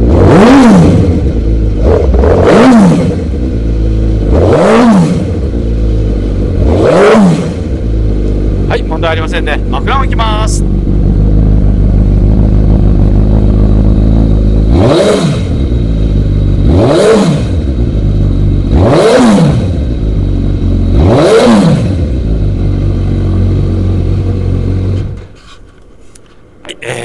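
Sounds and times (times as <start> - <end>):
motorcycle engine idling and revving: 0.0 - 25.7.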